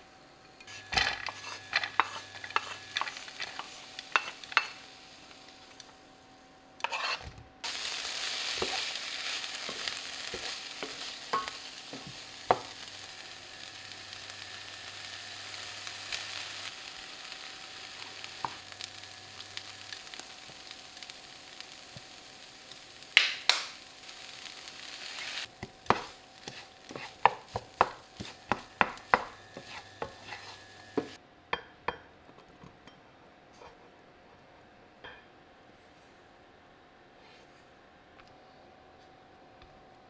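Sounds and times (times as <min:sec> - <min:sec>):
rice sizzling in frying pan: 0:00.0 - 0:06.2, 0:06.8 - 0:31.2
spatula tapping and scraping pan: 0:00.6 - 0:04.8, 0:09.6 - 0:12.8, 0:25.6 - 0:32.0.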